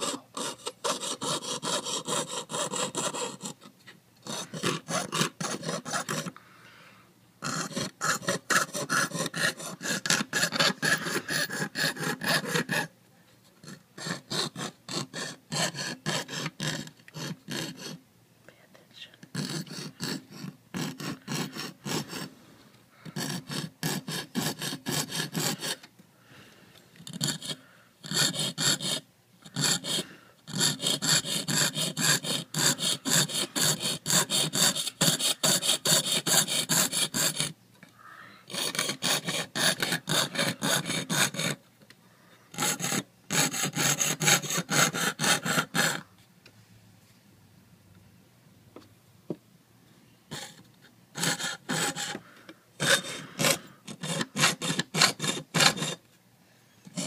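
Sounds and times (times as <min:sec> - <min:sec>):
saw rasping through metal sheet: 0:00.0 - 0:06.3, 0:07.4 - 0:12.9, 0:13.6 - 0:18.0, 0:19.4 - 0:22.3, 0:23.1 - 0:25.8, 0:27.1 - 0:37.5, 0:38.5 - 0:41.6, 0:42.6 - 0:46.0, 0:50.3 - 0:50.6, 0:51.2 - 0:52.2, 0:52.8 - 0:56.0.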